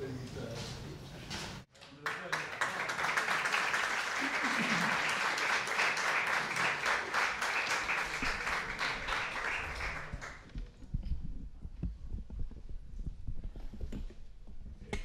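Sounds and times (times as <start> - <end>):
audience applauding: 1.8 - 10.5
soft low thumps and knocks: 10.6 - 15.0.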